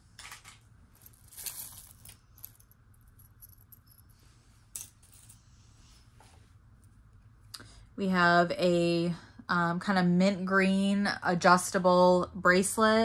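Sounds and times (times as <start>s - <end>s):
metal jewelry chains clinking: 0.9s - 5.4s.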